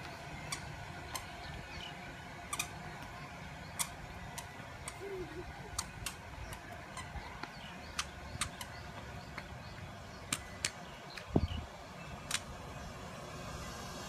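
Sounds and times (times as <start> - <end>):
steady low rumble: 0.0 - 14.0
sharp clicks: 7.4 - 8.7, 10.3 - 11.3, 12.2 - 12.5.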